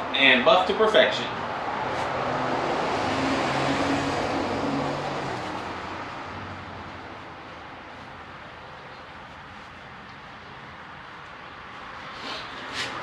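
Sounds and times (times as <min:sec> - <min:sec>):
vehicle passing by: 0:00.1 - 0:08.1.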